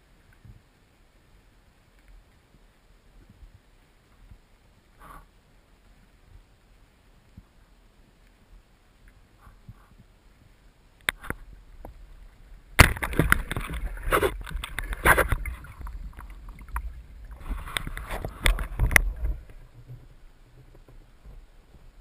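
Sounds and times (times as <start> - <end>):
water rushing against camera housing: 11.0 - 22.0.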